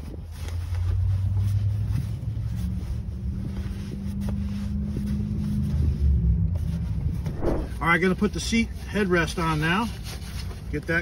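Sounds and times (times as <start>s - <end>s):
wind buffeting microphone: 7.1s - 7.8s.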